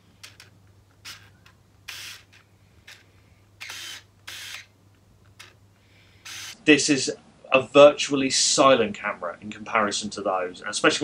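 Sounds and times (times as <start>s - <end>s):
camera film advance whirr: 0.2s - 3.0s, 3.6s - 4.7s, 6.2s - 6.6s.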